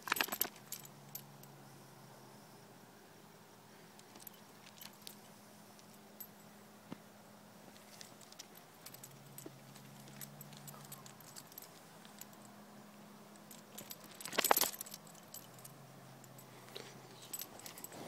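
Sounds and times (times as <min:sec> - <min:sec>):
small metal pieces jingling: 0:00.0 - 0:01.2, 0:04.0 - 0:06.1, 0:07.8 - 0:12.4, 0:13.4 - 0:16.5, 0:17.2 - 0:18.0
ringing metal jangle: 0:00.0 - 0:01.7, 0:04.0 - 0:06.6, 0:07.8 - 0:12.6, 0:13.3 - 0:18.0.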